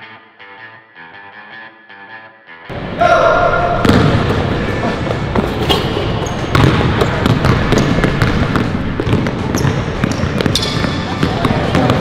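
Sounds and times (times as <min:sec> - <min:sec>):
basketballs bouncing on hard court: 0:03.7 - 0:12.0.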